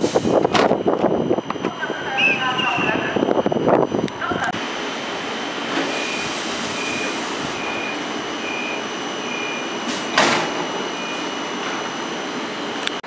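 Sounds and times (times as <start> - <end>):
short high warning beeps: 1.3 - 4.4, 5.9 - 12.1
door shutting with loud bang: 9.8 - 10.8.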